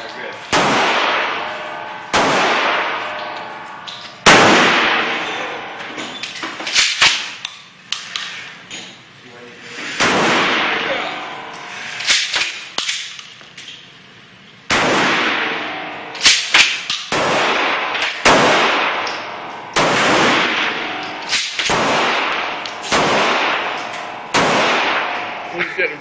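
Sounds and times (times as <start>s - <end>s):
gunshots echoing indoors: 0.5s - 6.0s, 10.0s - 13.2s, 14.7s - 25.6s.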